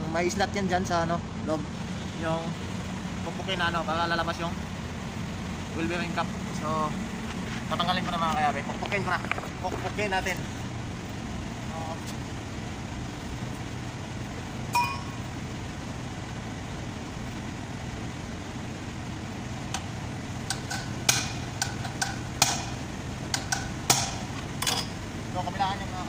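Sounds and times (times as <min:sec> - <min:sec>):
steady low hum: 0:00.0 - 0:26.0
hammer striking metal chisel: 0:20.5 - 0:24.9.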